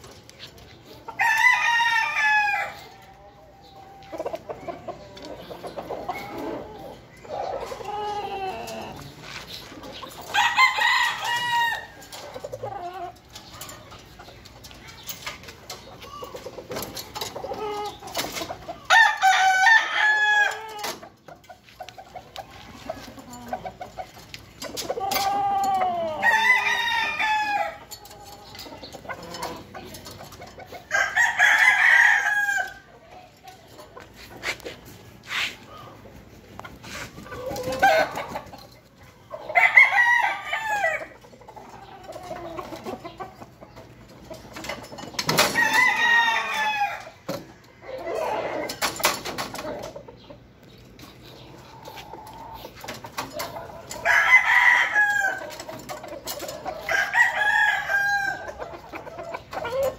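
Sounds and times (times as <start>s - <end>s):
rooster crowing: 56.9s - 58.5s.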